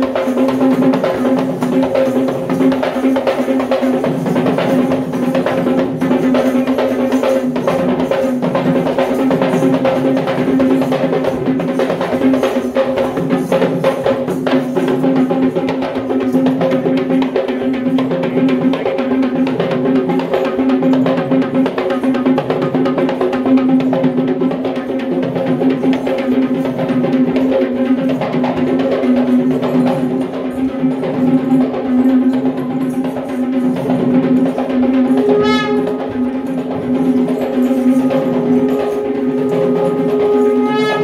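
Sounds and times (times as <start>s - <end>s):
fast drumming: 0.0s - 41.0s
droning pipe note: 35.2s - 36.4s, 37.0s - 41.0s.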